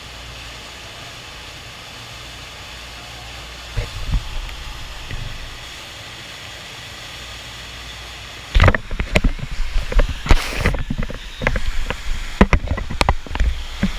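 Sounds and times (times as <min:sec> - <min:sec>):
water rushing: 0:00.6 - 0:13.9
camera handling knocks and rattles: 0:08.6 - 0:13.9.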